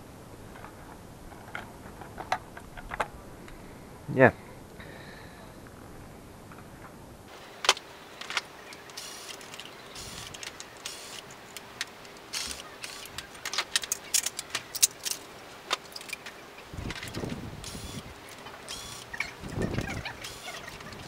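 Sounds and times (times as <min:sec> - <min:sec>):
metal parts clicking and clinking: 0:07.6 - 0:21.0.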